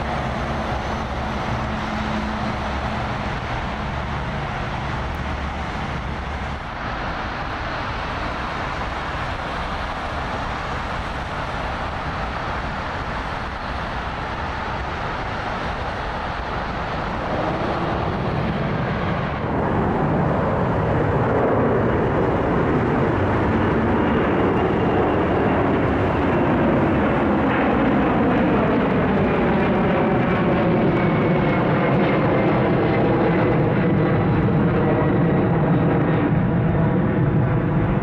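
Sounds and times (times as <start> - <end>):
jet on runway: 0.0 - 38.0
jet passing low overhead: 0.0 - 38.0.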